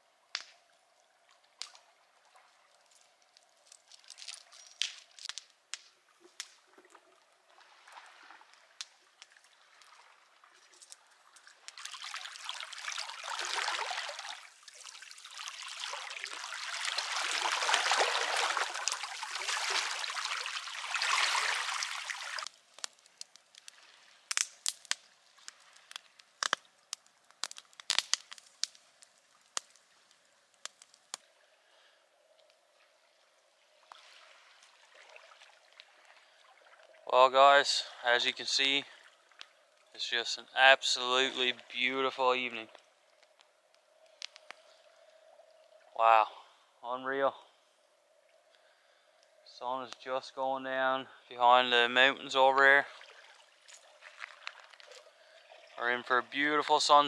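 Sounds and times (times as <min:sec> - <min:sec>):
sharp crackles: 0:00.3 - 0:57.0
water rushing and sloshing: 0:06.1 - 0:24.3, 0:32.8 - 0:43.2, 0:51.9 - 0:57.0.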